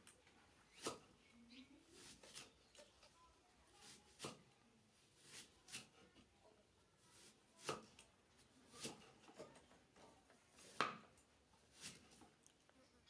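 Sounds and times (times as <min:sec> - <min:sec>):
knife cutting vegetable: 0:00.7 - 0:01.1, 0:02.0 - 0:02.8, 0:03.8 - 0:04.5, 0:05.2 - 0:06.1, 0:07.1 - 0:08.1, 0:08.7 - 0:09.4, 0:10.6 - 0:11.0, 0:11.7 - 0:12.2.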